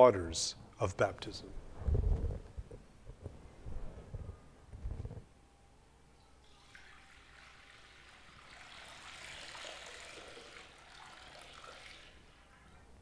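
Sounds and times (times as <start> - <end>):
water trickling into glass basin: 6.4 - 12.8.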